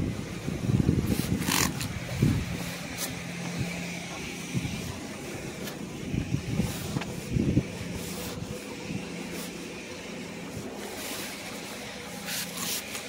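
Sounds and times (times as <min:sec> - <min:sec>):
car engine idling: 0:00.0 - 0:13.0
spray bottle hiss: 0:09.2 - 0:13.0.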